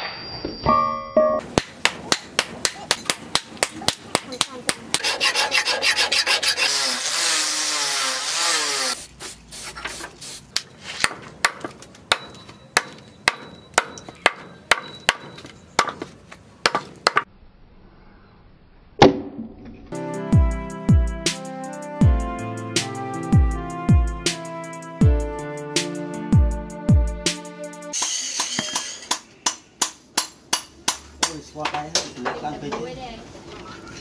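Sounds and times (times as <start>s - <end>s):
hatchet chopping wood: 1.4s - 5.1s, 11.0s - 17.3s, 28.5s - 32.0s
harsh rasping: 4.9s - 9.0s
music: 19.9s - 29.0s.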